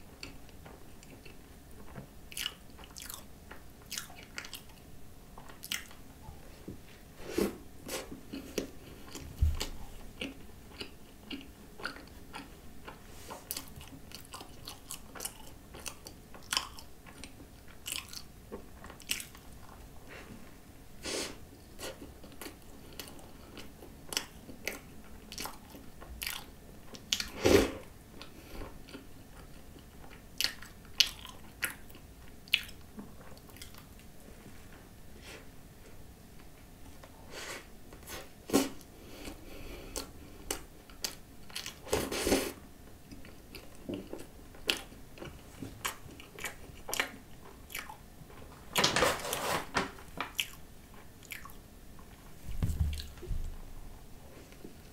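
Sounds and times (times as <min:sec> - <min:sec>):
chewing with mouth clicks: 0:01.0 - 0:06.0, 0:08.3 - 0:19.8, 0:28.2 - 0:34.0, 0:43.0 - 0:48.4, 0:50.3 - 0:52.2.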